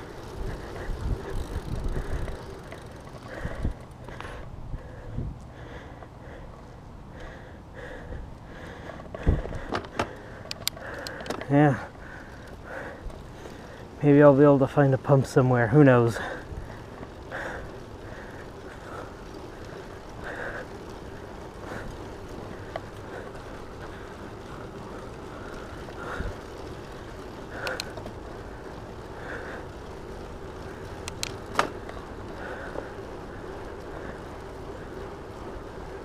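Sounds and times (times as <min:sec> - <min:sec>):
electric bike tyre hum: 0:00.0 - 0:36.0
wind noise on microphone: 0:00.4 - 0:02.4, 0:03.3 - 0:03.8, 0:04.4 - 0:05.4, 0:09.1 - 0:09.8
sharp clicks: 0:09.5 - 0:11.5, 0:27.6 - 0:28.2, 0:31.0 - 0:32.0.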